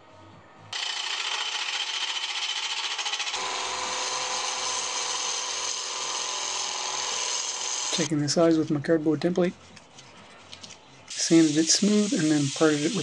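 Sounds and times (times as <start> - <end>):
steady machine hum: 0.0 - 8.1
lathe tool cutting wood: 0.8 - 8.1.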